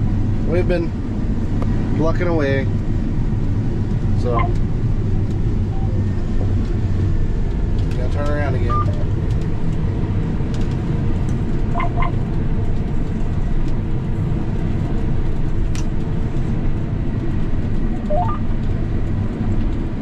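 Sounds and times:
combine harvester engine drone: 0.0s - 20.0s
short electronic beeps: 4.3s - 4.6s, 8.7s - 8.9s, 11.7s - 12.1s, 18.0s - 18.4s
short rising chirp: 4.3s - 4.6s, 11.8s - 12.1s, 18.1s - 18.4s.

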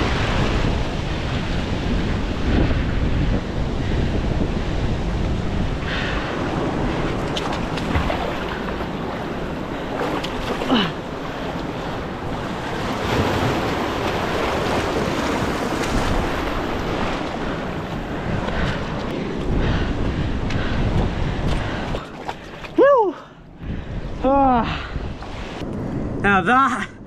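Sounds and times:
surf washing over rocks: 0.0s - 4.4s, 5.0s - 19.6s
wind buffeting microphone: 0.0s - 27.0s.

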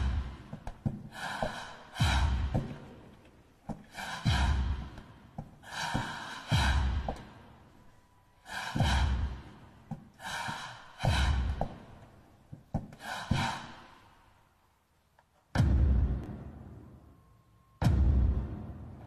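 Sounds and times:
deep thud: 15.6s - 16.6s, 17.8s - 18.9s.

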